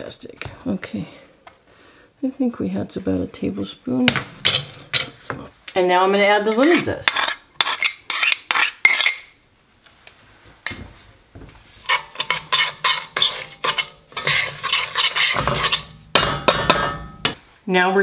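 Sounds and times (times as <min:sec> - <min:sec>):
spoon scraping metal saucepan: 0:04.4 - 0:05.3, 0:06.4 - 0:09.4, 0:11.8 - 0:17.4
spoon clinking glass bowl: 0:10.7 - 0:11.0.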